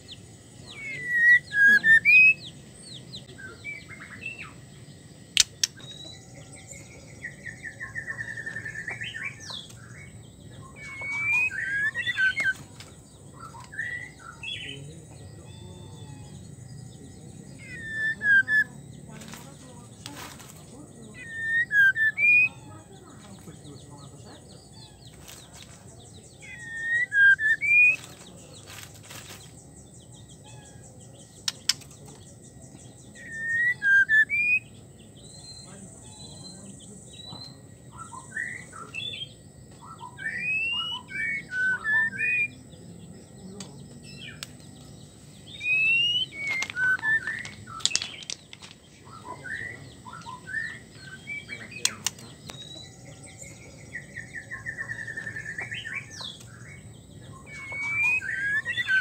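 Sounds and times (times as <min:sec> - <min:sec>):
bird whistling calls: 0:00.0 - 0:04.6, 0:05.4 - 0:14.8, 0:17.3 - 0:18.8, 0:21.0 - 0:22.8, 0:26.3 - 0:28.1, 0:33.1 - 0:42.7, 0:45.4 - 0:59.0
sharp clicks: 0:05.3 - 0:05.9, 0:31.4 - 0:32.1, 0:51.8 - 0:52.6.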